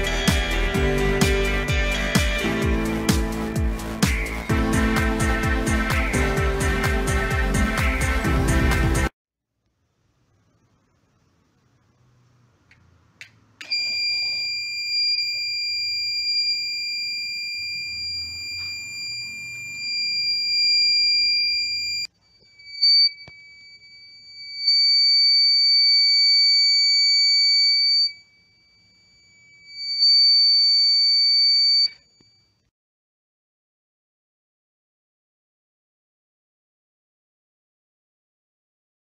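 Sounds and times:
electronic buzzer high-pitched tone: 13.7 - 32.4.

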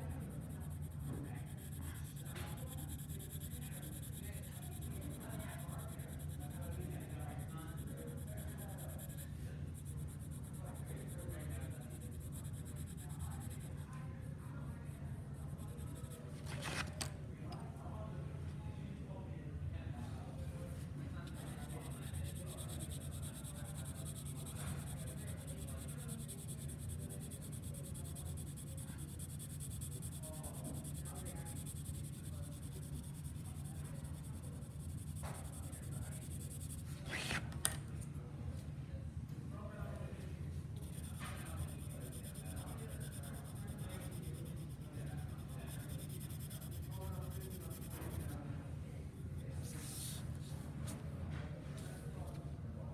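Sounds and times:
pencil scratching on paper: 0.0 - 13.9, 15.4 - 16.9, 21.2 - 37.4, 40.8 - 48.4
low steady hum: 0.0 - 18.7
steady low hum: 0.0 - 52.9.

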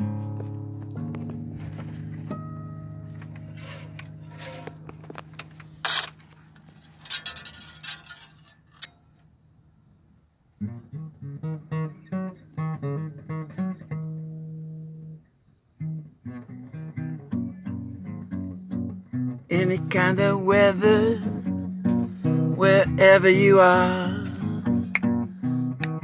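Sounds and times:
guitar plucked notes: 0.0 - 6.6, 10.6 - 26.0
rustling: 0.0 - 9.3.

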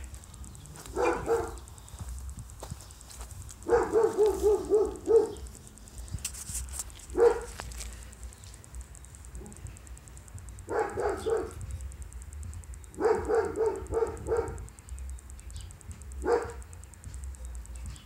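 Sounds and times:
dog yipping: 3.7 - 5.4.

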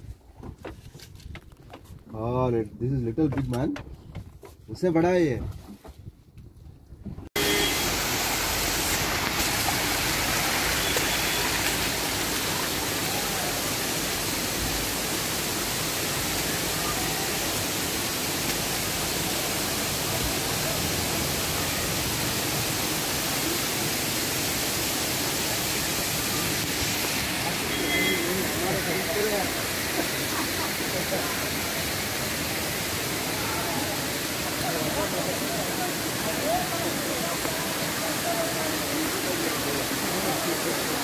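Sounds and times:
waterfall rushing over rocks: 7.4 - 41.0.

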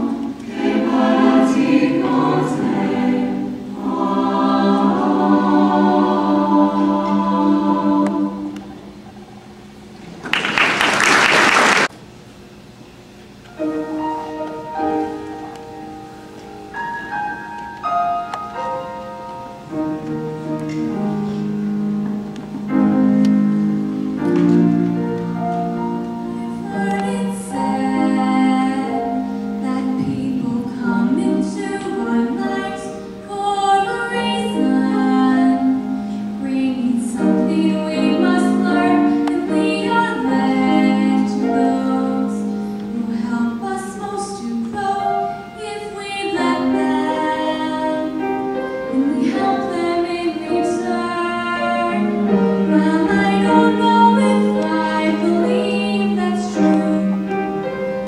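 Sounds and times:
choir singing: 0.0 - 9.0, 25.9 - 57.6.

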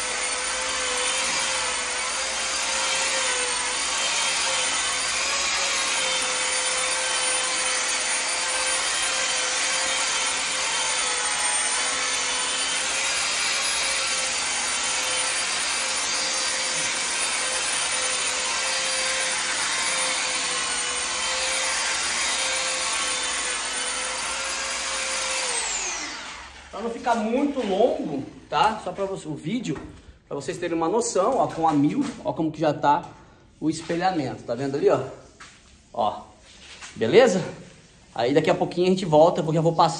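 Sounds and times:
electric polisher motor whine: 0.0 - 26.7.

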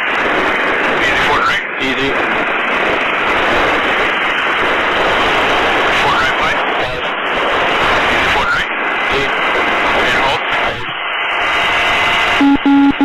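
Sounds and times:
helicopter hovering through intercom: 1.1 - 2.3, 5.9 - 7.2, 9.9 - 10.9.

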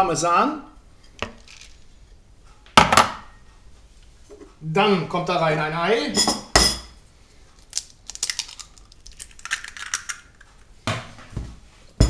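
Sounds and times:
eggshell crackling: 1.1 - 2.2, 7.5 - 10.8.

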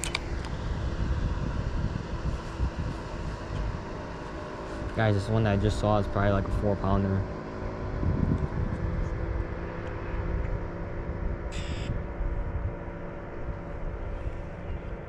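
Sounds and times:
distant engine hum: 0.0 - 15.0
bird call: 11.5 - 12.0.

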